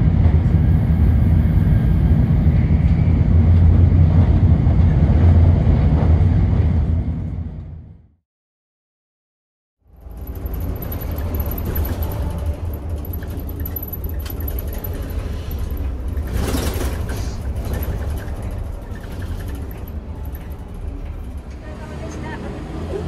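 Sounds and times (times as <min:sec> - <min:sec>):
bus engine and road rumble: 0:00.0 - 0:08.1, 0:09.9 - 0:23.0.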